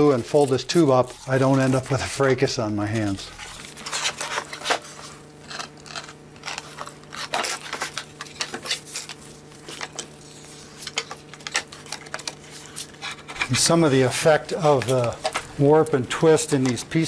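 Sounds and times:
faint electrical hum: 0.0s - 17.0s
handling clicks and rustles: 10.8s - 17.0s.

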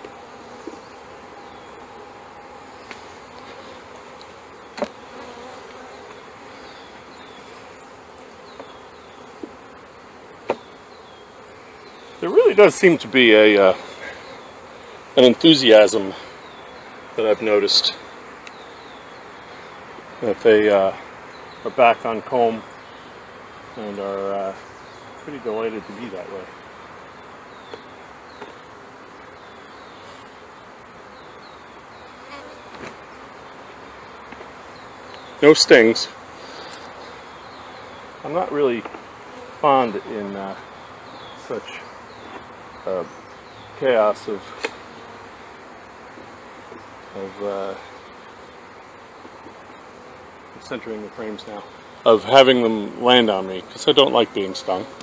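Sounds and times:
honeybees buzzing: 0.0s - 55.0s.

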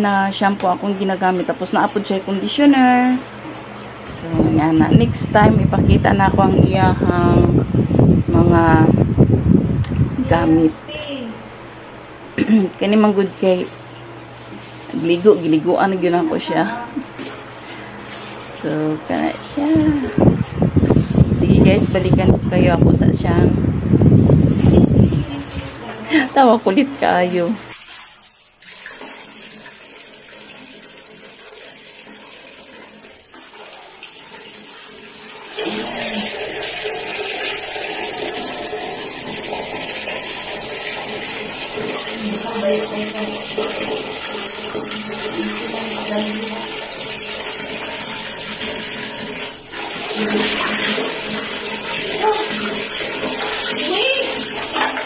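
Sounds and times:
tap water splashing into bucket: 27.7s - 55.0s.

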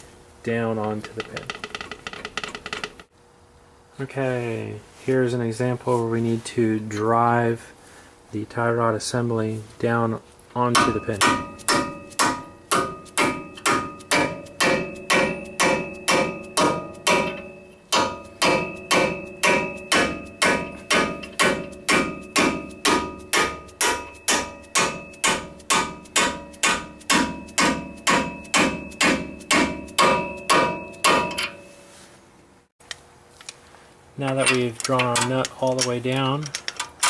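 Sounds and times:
hammer striking metal socket: 10.7s - 31.7s.

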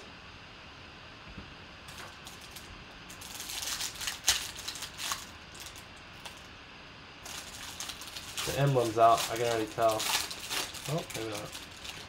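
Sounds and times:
foil wrapper crinkling and tearing: 1.9s - 6.5s, 7.2s - 12.0s.

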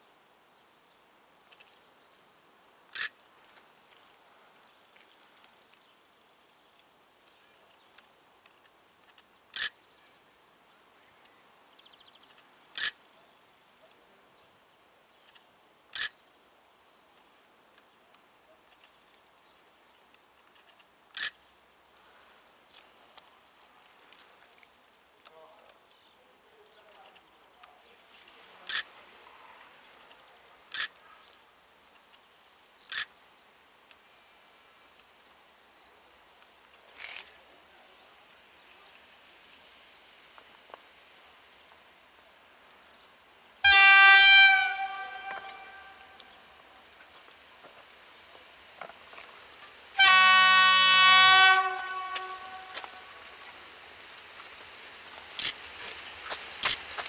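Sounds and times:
small birds chirping: 6.6s - 17.2s, 51.7s - 56.9s
bird giving harsh calls: 43.6s - 46.5s, 50.0s - 53.2s
short sharp loud sounds: 43.7s - 46.4s.

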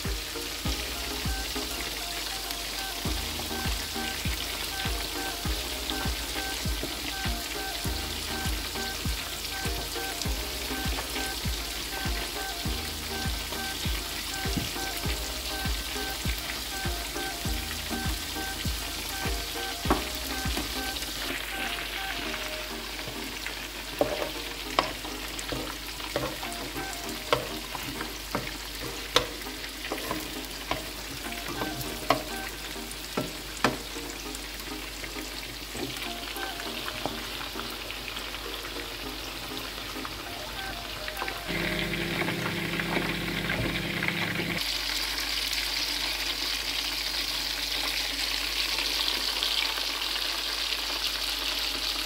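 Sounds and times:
vegetables sizzling in a frying pan: 0.0s - 52.0s
spatula knocking on pan: 27.3s - 27.6s.

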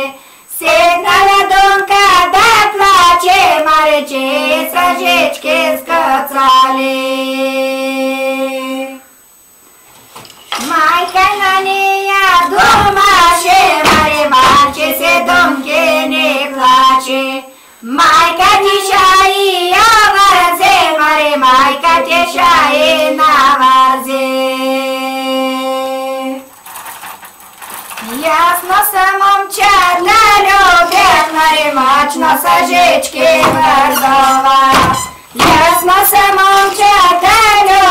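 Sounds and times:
women singing unaccompanied folk song: 0.0s - 9.2s, 10.6s - 26.6s, 28.0s - 37.9s.

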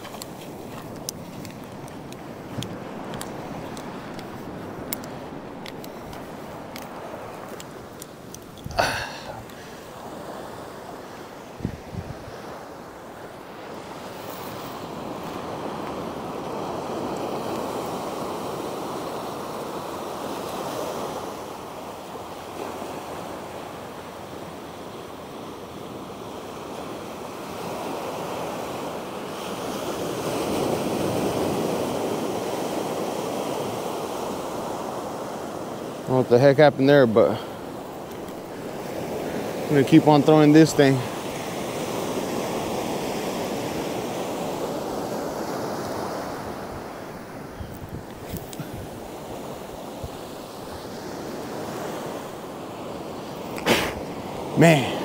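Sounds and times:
wind on microphone: 0.0s - 10.4s, 11.5s - 12.6s, 45.1s - 51.1s
small waves breaking on beach: 0.0s - 55.0s.

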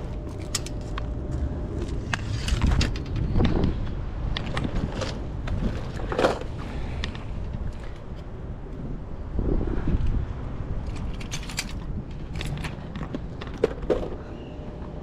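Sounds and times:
steady low rumble: 0.0s - 15.0s
fishing gear clicks and knocks: 10.8s - 14.2s.

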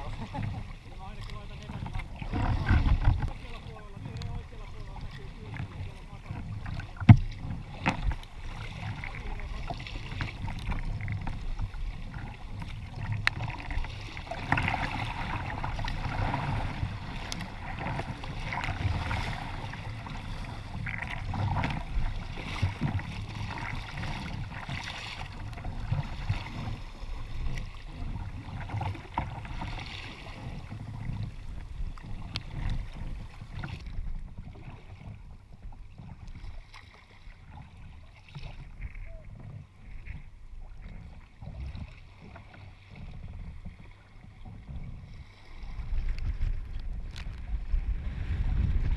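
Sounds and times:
water rushing and splashing: 0.0s - 48.9s.

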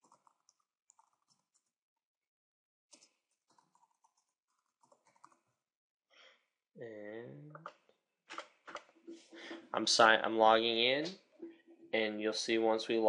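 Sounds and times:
faint keyboard typing: 0.0s - 1.7s, 2.9s - 5.5s.

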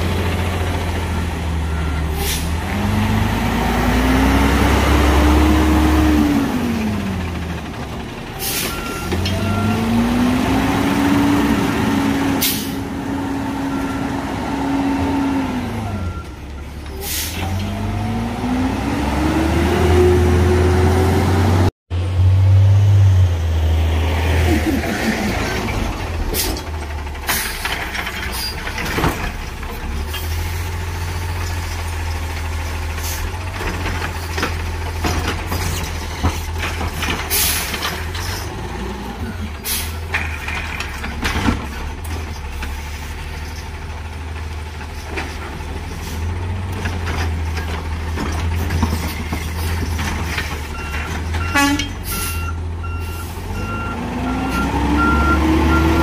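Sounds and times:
garbage truck diesel engine revving: 0.0s - 16.2s, 17.1s - 56.0s
truck clunks: 4.6s - 14.3s, 24.7s - 56.0s
air brake hissing: 12.4s - 12.8s, 17.0s - 17.4s.

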